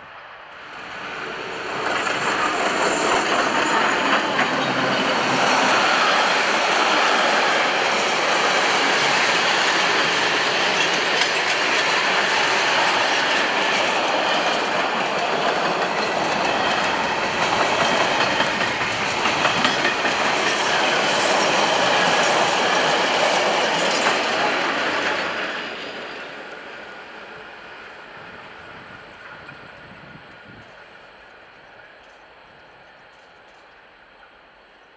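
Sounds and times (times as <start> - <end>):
train wheels rumbling on rail: 0.5 - 34.9
clickety-clack over rail joints: 1.5 - 26.4.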